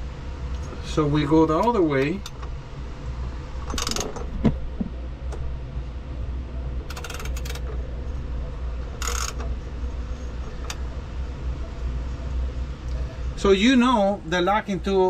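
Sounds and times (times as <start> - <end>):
steady low hum: 0.0 - 15.0
wrench clicking: 3.7 - 4.2, 6.9 - 7.7, 9.0 - 9.5.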